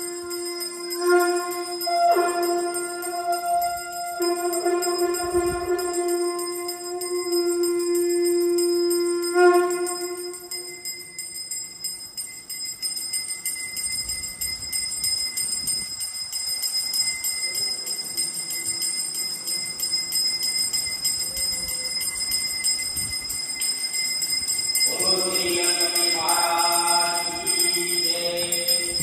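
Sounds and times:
held musical tone: 0.0s - 11.4s
temple bell ringing rapidly: 0.0s - 29.0s.

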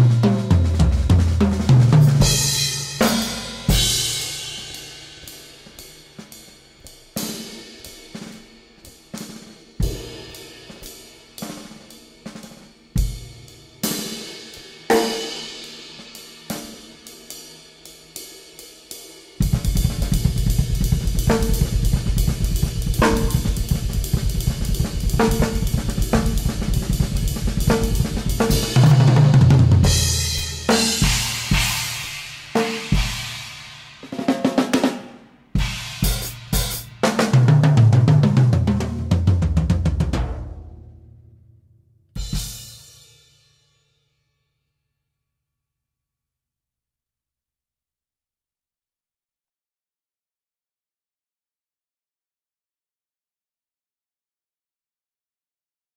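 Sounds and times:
drum kit playing: 0.0s - 17.2s, 19.4s - 41.0s, 42.2s - 43.1s.

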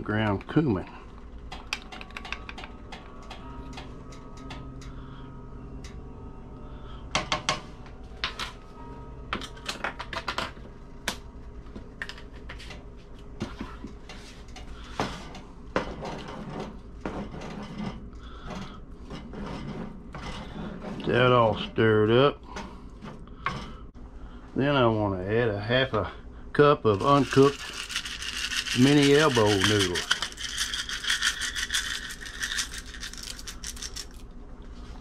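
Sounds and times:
spoon and jar clicks and taps: 1.7s - 2.7s
wooden spoon scraping metal pot: 26.9s - 33.3s.

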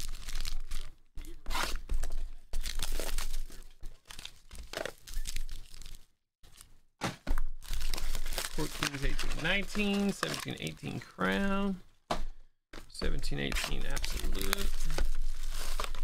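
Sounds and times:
cellophane crinkling and tearing: 0.0s - 6.6s, 7.6s - 11.0s, 13.4s - 16.0s.

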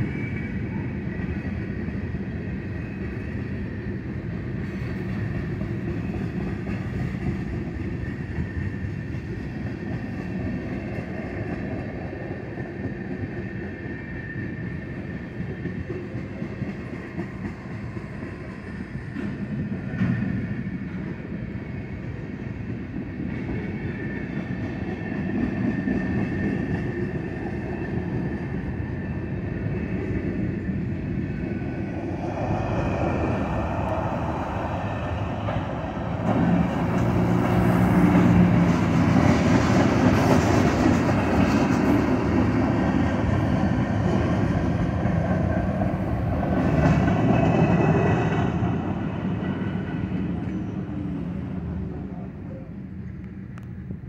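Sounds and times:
freight train rolling past: 0.0s - 54.0s.

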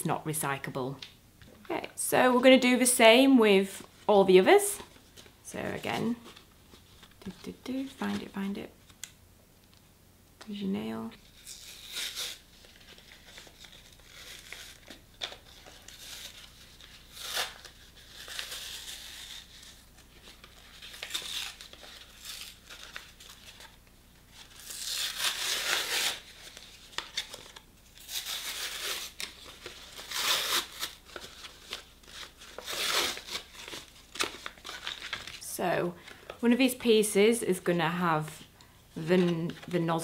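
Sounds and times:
plastic film crinkling and tearing: 11.2s - 35.5s.

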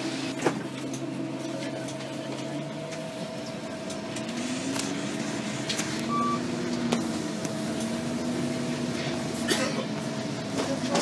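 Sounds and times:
bus engine whine: 0.0s - 11.0s
high beep: 6.1s - 6.5s.

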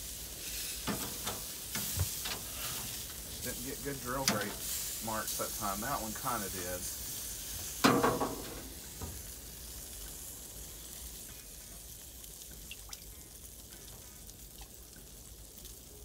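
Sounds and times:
steaks sizzling on a grill: 0.0s - 16.0s.

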